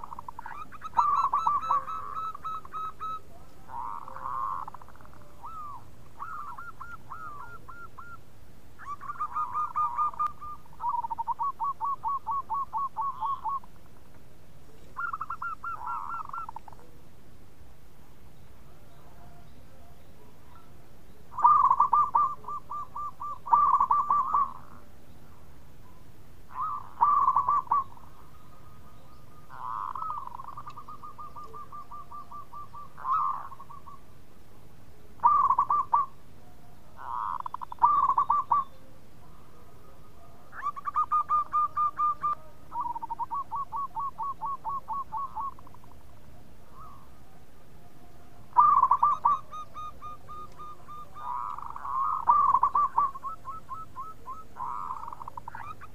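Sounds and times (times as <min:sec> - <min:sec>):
dove cooing: 0:00.0 - 0:13.8, 0:14.7 - 0:17.1, 0:18.6 - 0:34.2, 0:34.9 - 0:55.9.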